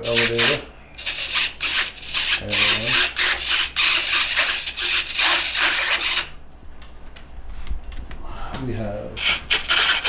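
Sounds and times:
servos whirring: 0.0s - 6.4s.

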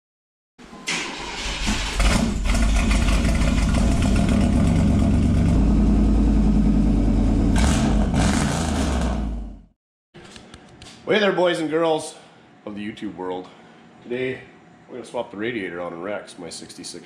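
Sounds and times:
car engine starting and rumbling: 0.9s - 9.7s.

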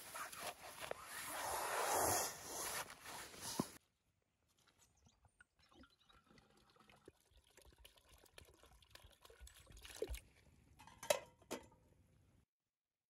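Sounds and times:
water pouring into metal vessel: 5.6s - 10.3s.

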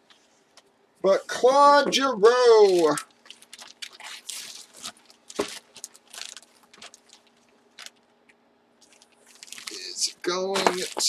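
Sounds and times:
plastic bag crinkling: 2.2s - 8.1s, 8.8s - 11.0s.

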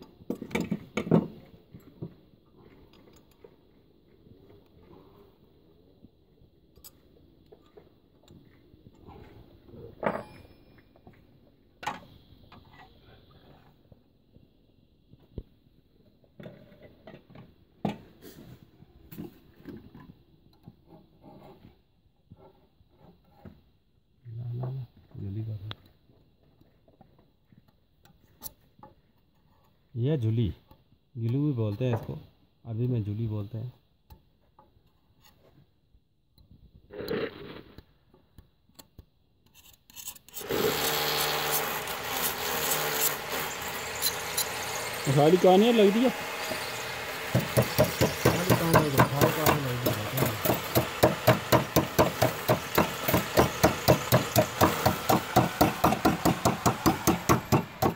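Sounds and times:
blade scraping and clicking: 39.4s - 44.6s
loud continuous rasping: 40.3s - 57.9s
stone slab knocking on clips: 47.3s - 57.9s.

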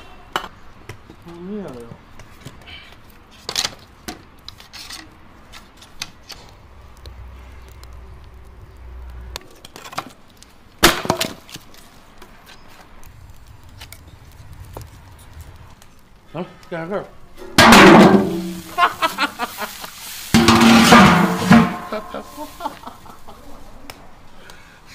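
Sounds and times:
knocks and cracks of firewood: 0.3s - 16.8s, 17.4s - 19.3s
loud clatter of wood: 10.8s - 11.6s, 17.6s - 19.2s, 20.4s - 22.2s.

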